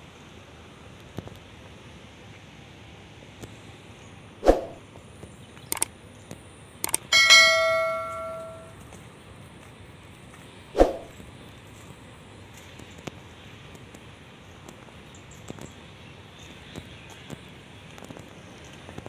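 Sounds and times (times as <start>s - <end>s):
notification bell ding: 7.1s - 8.7s.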